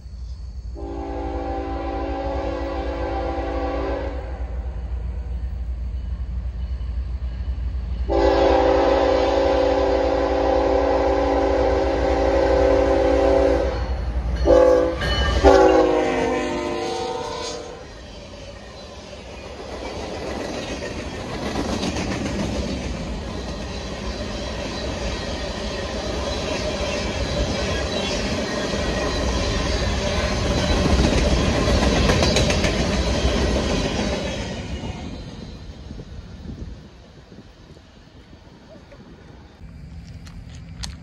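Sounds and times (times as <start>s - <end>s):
train wheels clacking on rails: 18.0s - 35.4s.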